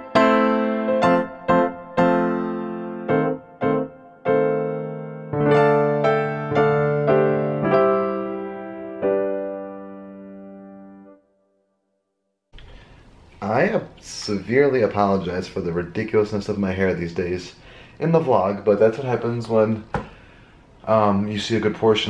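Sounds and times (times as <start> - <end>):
electric piano music: 0.0 - 11.4.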